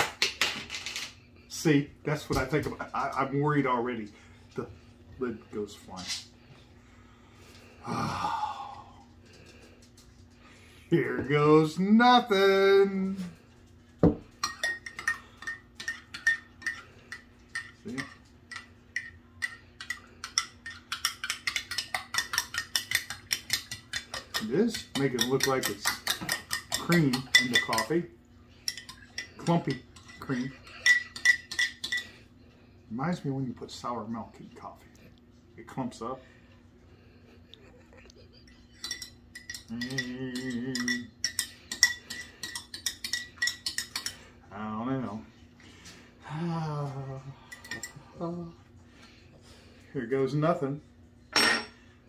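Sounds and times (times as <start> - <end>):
person humming: 7.8 - 9.0, 39.7 - 41.1
spoon clinking in ceramic mug: 17.6 - 27.9, 38.7 - 44.1.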